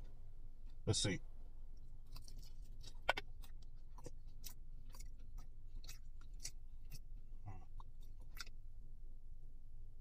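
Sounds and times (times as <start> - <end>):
chewing crunchy food: 1.7 - 8.9.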